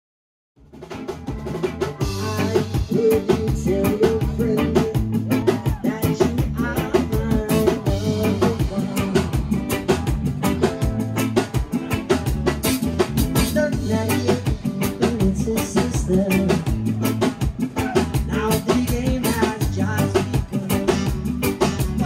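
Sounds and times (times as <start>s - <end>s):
bass guitar: 0.6s - 22.0s
drum kit beat: 0.6s - 22.0s
person singing: 1.4s - 22.0s.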